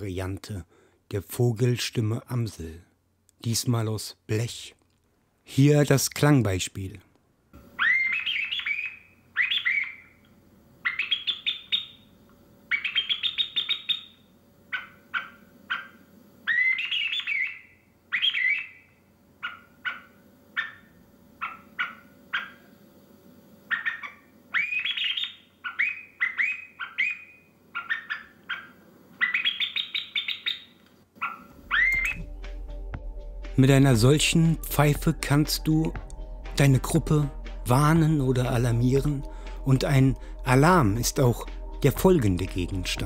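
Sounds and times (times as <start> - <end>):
whistled bird call chirps: 7.8 - 10.2, 10.8 - 12.1, 12.7 - 15.3, 16.5 - 19.0, 23.7 - 28.3, 29.2 - 30.7, 31.7 - 32.2.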